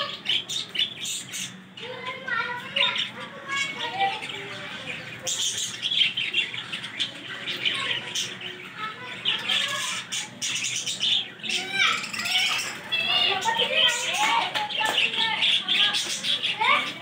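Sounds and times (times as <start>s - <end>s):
budgerigars chirping: 0.0s - 1.7s, 2.6s - 14.1s.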